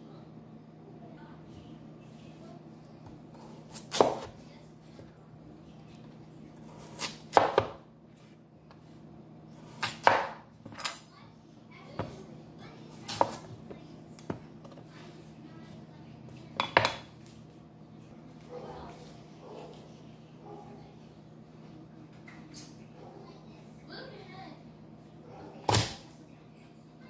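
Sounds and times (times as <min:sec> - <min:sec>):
knife cutting potatoes: 0:03.4 - 0:04.4, 0:06.6 - 0:07.8, 0:09.6 - 0:10.9, 0:13.0 - 0:13.5.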